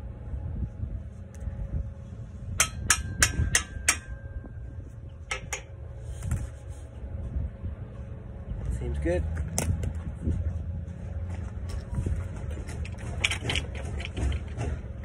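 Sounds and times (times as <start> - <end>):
hammer tapping metal: 2.6 - 4.6, 5.3 - 5.7.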